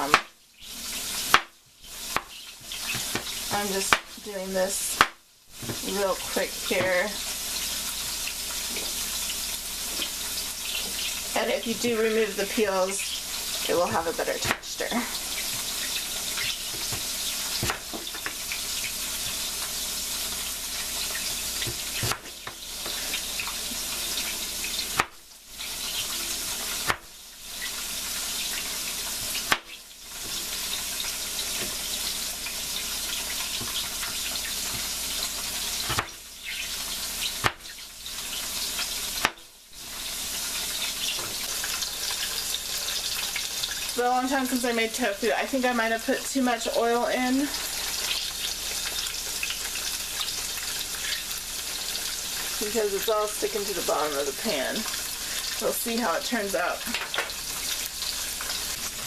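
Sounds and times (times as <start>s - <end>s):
knife chopping on plastic board: 0.0s - 0.3s, 1.3s - 1.5s, 2.1s - 4.1s, 5.0s - 5.9s, 13.8s - 14.7s, 16.4s - 18.4s, 21.6s - 23.0s, 24.9s - 25.2s, 26.8s - 27.1s, 29.4s - 29.8s, 35.8s - 36.2s, 37.4s - 37.7s, 39.2s - 39.4s
tofu sizzling in oil: 0.0s - 59.0s.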